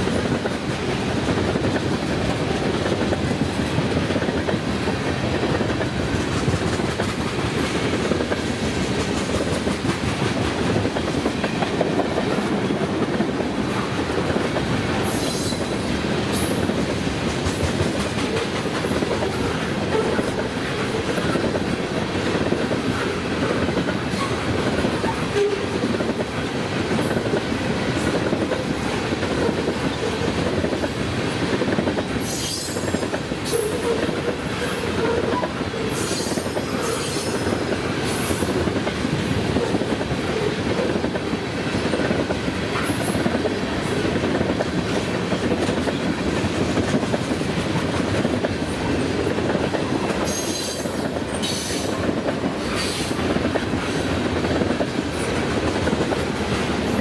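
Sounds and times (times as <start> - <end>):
freight train rumbling past: 0.0 - 57.0.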